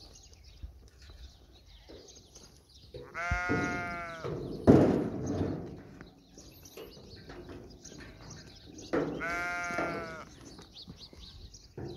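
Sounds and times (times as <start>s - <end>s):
herd shuffling and knocking: 1.3s - 11.9s
goat bleating: 3.0s - 4.3s, 9.2s - 10.4s.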